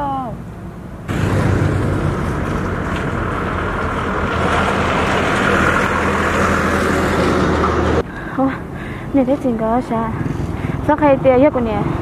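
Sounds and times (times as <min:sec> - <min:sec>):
low hum: 0:00.3 - 0:09.1
engine running: 0:00.5 - 0:08.7
loud rushing noise: 0:01.0 - 0:08.0.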